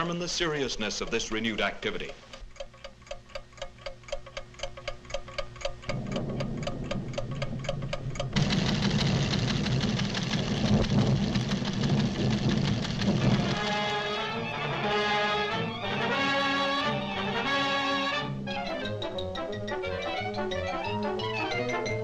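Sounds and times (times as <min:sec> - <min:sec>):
seismograph ticking: 0:00.0 - 0:14.8
low rumble: 0:05.9 - 0:13.7.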